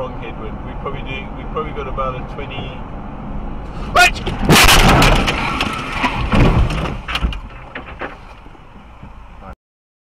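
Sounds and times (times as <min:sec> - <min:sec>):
car crash crunching: 0:04.0 - 0:08.5
sharp knocks and clatters: 0:04.2 - 0:08.4.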